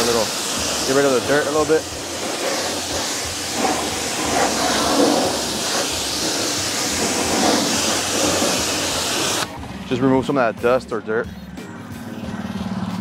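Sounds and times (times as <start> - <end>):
pressure washer jet spraying: 0.0 - 9.5.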